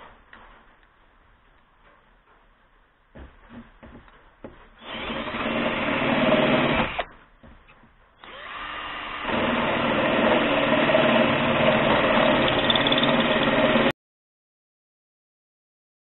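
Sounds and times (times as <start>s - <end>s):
cordless drill boring into metal: 4.8s - 7.1s, 8.2s - 13.9s.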